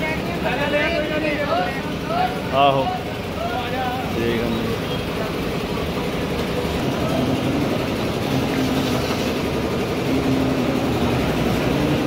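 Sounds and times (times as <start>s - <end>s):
vehicle engines running: 0.0s - 12.0s.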